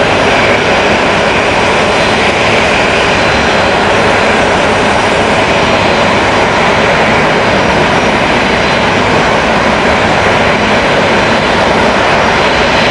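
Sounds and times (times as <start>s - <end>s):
turboprop engines running: 0.0s - 12.9s.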